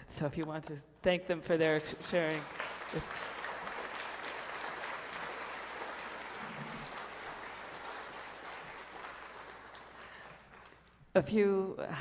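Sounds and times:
audience applauding: 0:02.0 - 0:11.0.

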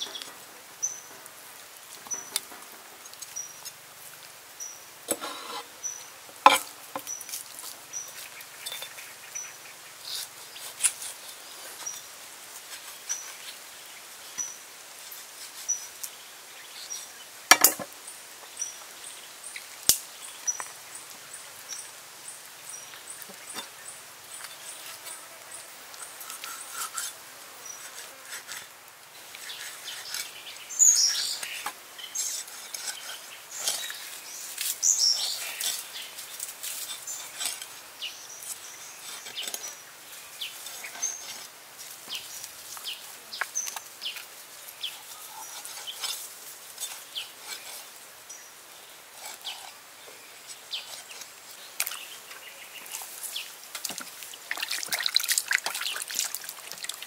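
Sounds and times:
birds chirping: 0:46.8 - 0:57.0.

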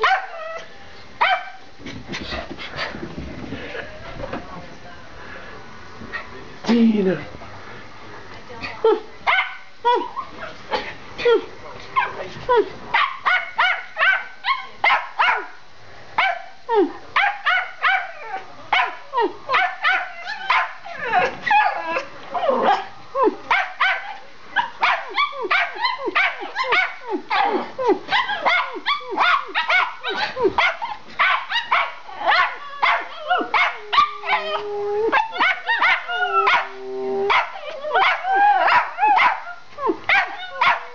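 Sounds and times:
small dogs barking rapidly: 0:00.0 - 0:00.3, 0:09.2 - 0:09.6, 0:12.9 - 0:15.6, 0:17.2 - 0:18.2, 0:18.8 - 0:20.8, 0:23.5 - 0:34.4, 0:35.1 - 0:36.7, 0:37.3 - 0:40.9.

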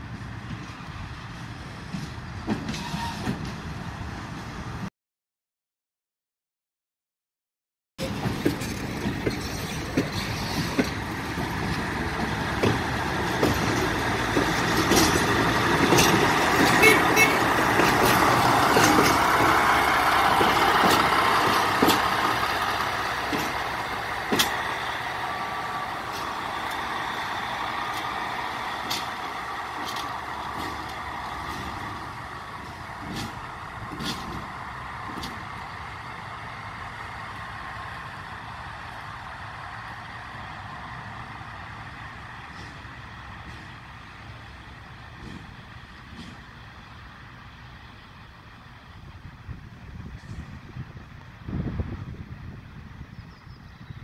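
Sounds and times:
diesel locomotive engine passing: 0:00.0 - 0:04.9, 0:08.0 - 0:54.0
wheels clicking on track: 0:08.0 - 0:54.0.

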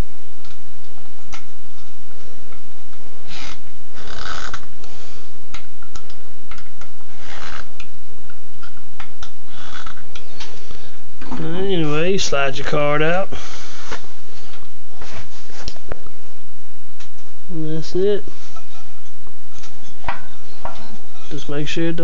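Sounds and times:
screwdriver scraping rubs: 0:07.1 - 0:07.8.

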